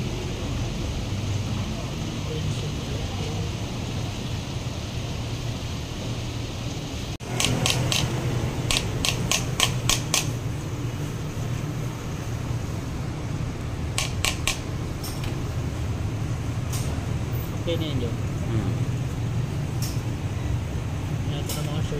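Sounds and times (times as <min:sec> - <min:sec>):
steady low hum: 0:00.0 - 0:21.9.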